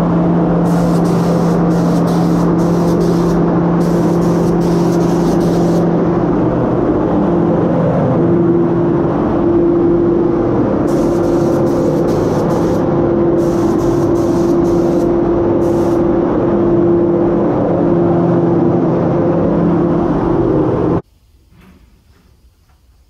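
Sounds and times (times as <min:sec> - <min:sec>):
steady hum: 0:00.0 - 0:21.4
spray gun air hiss: 0:00.6 - 0:06.0, 0:10.8 - 0:16.1.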